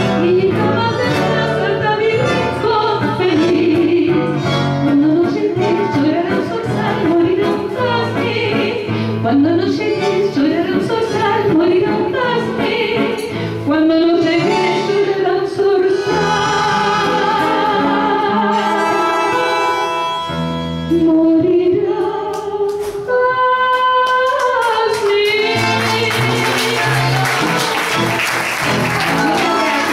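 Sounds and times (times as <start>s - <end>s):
woman singing into microphone: 0.0s - 19.9s, 20.9s - 27.3s
instrumental accompaniment: 0.0s - 23.2s, 24.4s - 29.9s
audience applause: 24.9s - 29.9s.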